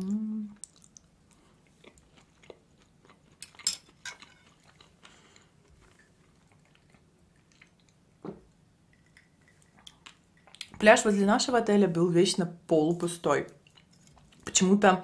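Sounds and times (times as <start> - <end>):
soft chewing with mouth clicks: 0.0 - 10.8, 13.4 - 14.6.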